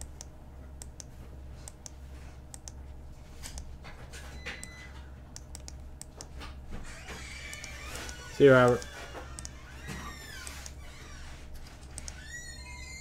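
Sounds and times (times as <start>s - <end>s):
computer mouse clicking: 0.0s - 2.8s, 5.4s - 6.3s, 7.5s - 9.6s, 11.8s - 12.2s
low electrical hum: 0.0s - 13.0s.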